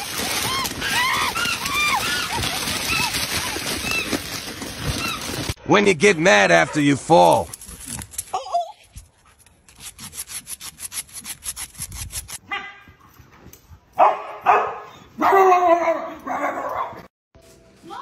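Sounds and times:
dog claws scraping on concrete: 9.2s - 12.4s
dog barking loudly: 12.5s - 12.8s, 14.0s - 17.1s.

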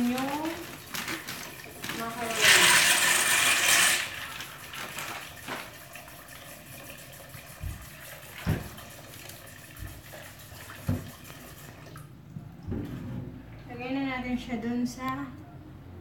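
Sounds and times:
water running from tap: 0.0s - 12.1s.

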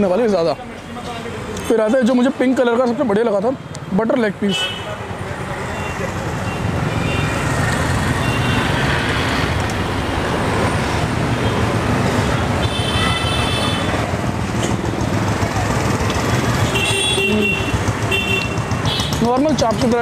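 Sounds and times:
traffic rumble: 0.0s - 20.0s
vehicle horns tooting: 8.2s - 8.8s, 12.4s - 14.0s, 16.6s - 19.4s.

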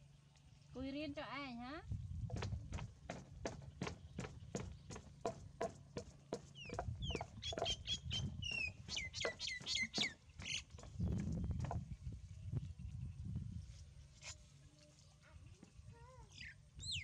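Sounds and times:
bird chirping: 6.3s - 13.2s, 16.3s - 17.0s.

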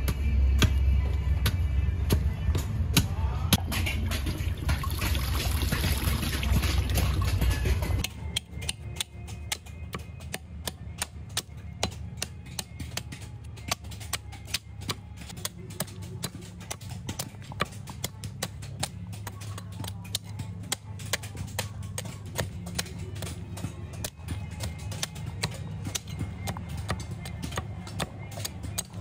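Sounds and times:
quiet background music: 0.0s - 29.0s
water pouring into a strainer: 4.6s - 7.3s.

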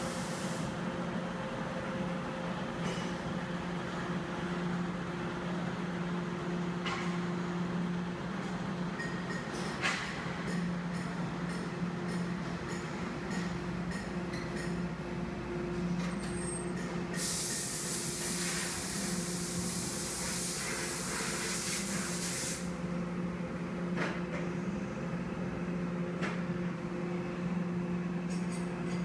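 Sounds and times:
workshop machinery hum: 0.0s - 29.0s
loud hiss: 17.2s - 22.7s.

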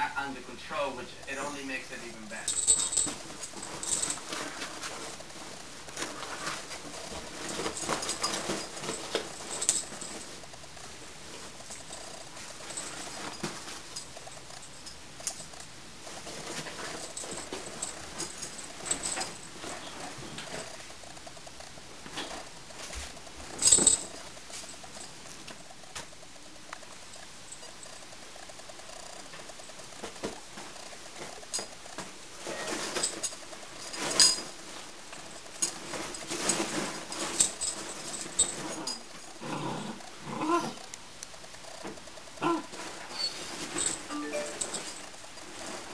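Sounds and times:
dogs scuffling on beanbag: 2.7s - 21.0s, 29.2s - 39.2s, 42.6s - 45.9s.

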